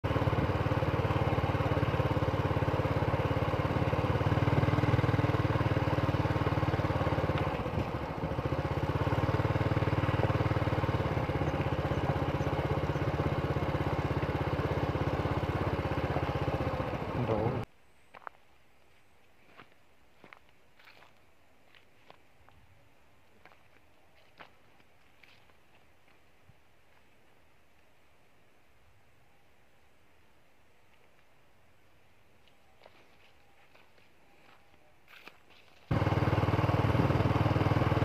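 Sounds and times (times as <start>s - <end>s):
small motorcycle engine running: 0.0s - 17.7s, 35.8s - 38.0s.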